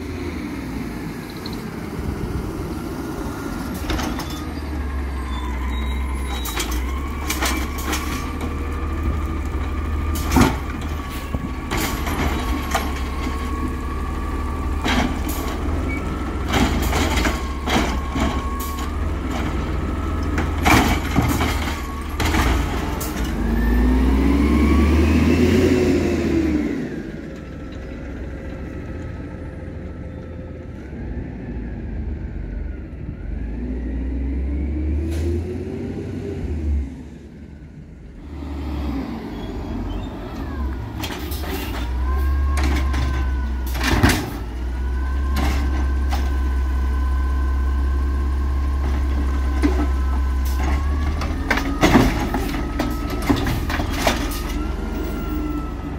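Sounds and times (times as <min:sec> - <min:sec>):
truck engine revving: 0:00.0 - 0:28.2, 0:31.0 - 0:55.9.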